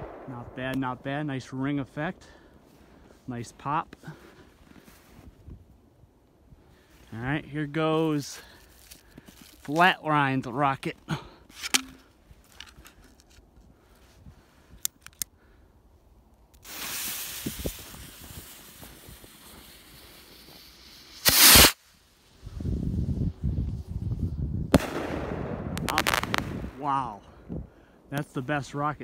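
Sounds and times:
rocket launching hiss: 16.6 - 21.9, 24.7 - 26.8
firework bang: 24.7 - 26.8.

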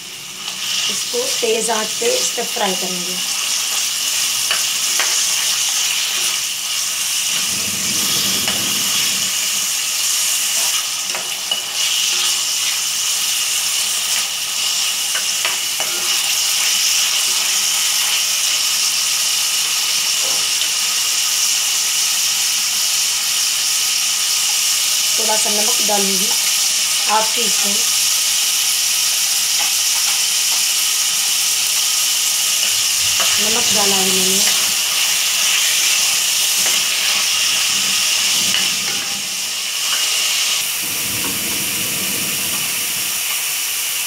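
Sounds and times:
chicken sizzling in hot oil: 0.0 - 44.0.

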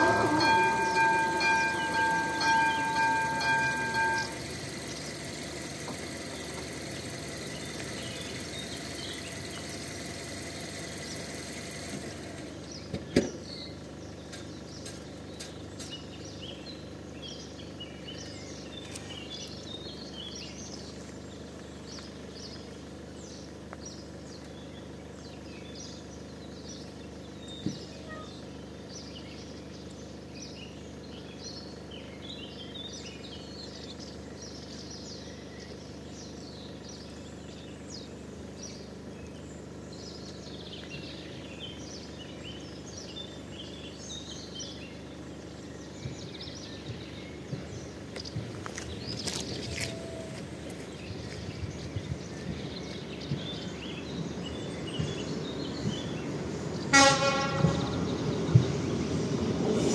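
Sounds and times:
level crossing warning bell: 0.0 - 7.9
birds chirping: 0.0 - 59.9
outdoor background noise: 0.0 - 59.9.

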